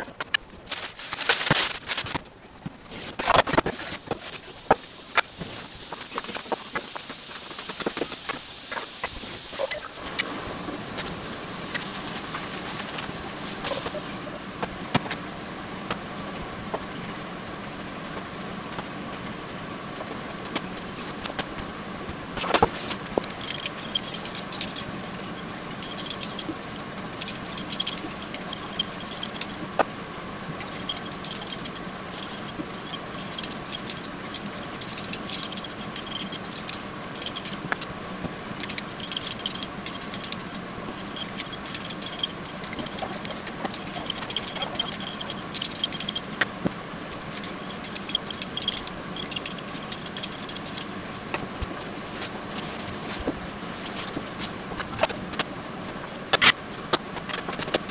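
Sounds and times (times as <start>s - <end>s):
peeler scraping potatoes: 22.6s - 29.6s, 30.6s - 37.8s, 38.6s - 46.5s, 47.3s - 51.3s.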